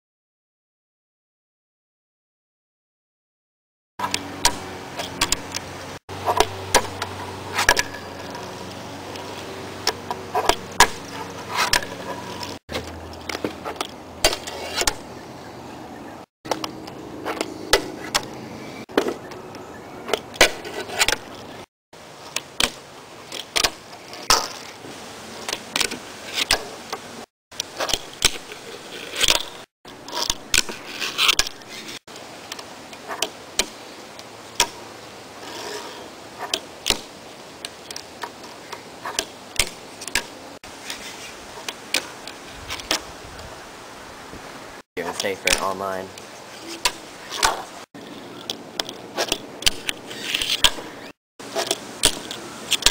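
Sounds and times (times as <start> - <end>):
trucks scraping on metal: 4.0 - 15.2, 20.0 - 21.7, 27.7 - 32.0, 35.4 - 36.6, 46.4 - 52.9
wheels rolling on wood: 4.0 - 15.2, 16.0 - 43.6, 45.0 - 52.9.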